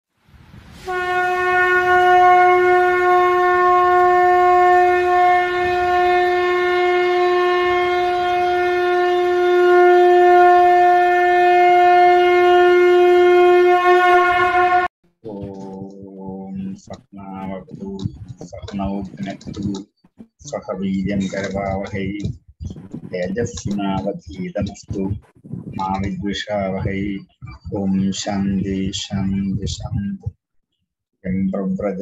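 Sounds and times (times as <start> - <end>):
conch shell blown: 0.8 - 15.9.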